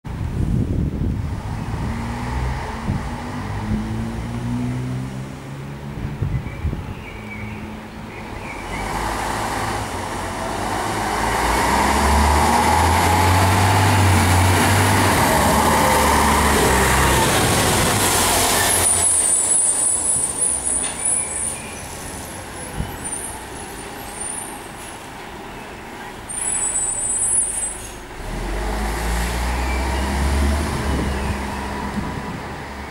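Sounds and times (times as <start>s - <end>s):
fire engine diesel engine: 7.6s - 32.9s
high squeals: 18.5s - 24.9s, 26.3s - 28.0s.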